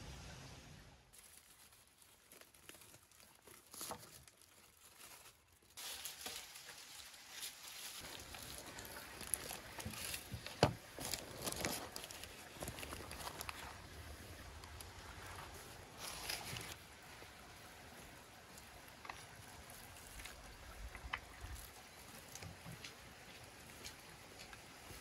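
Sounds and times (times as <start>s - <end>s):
foil and paper crinkling: 1.1s - 16.8s.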